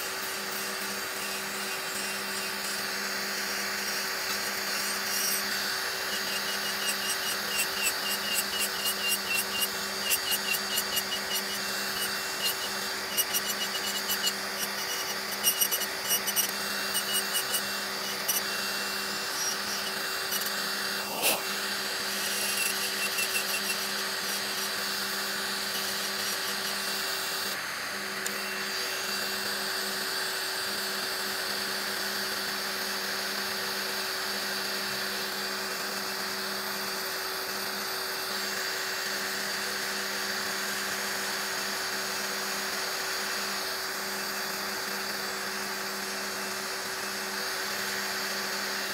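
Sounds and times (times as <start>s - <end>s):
electric nail drill whining: 0.0s - 48.9s.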